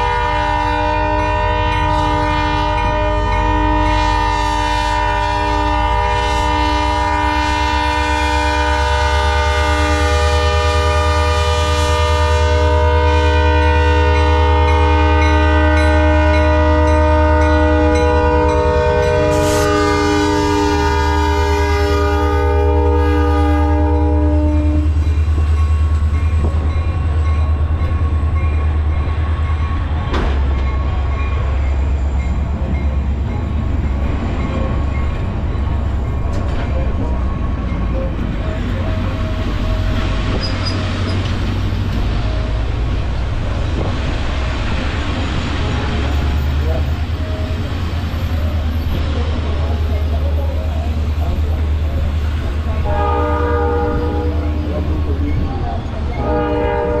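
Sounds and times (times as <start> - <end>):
locomotive horn chord: 0.0 - 25.2, 52.7 - 55.2, 56.1 - 57.0
diesel locomotive engine rumbling: 0.0 - 57.0.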